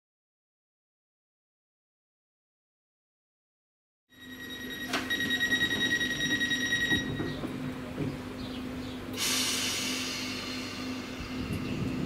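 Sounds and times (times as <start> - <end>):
train door warning beeps: 4.1 - 7.8
train low hum: 4.2 - 12.0
loud air hiss: 9.2 - 12.0.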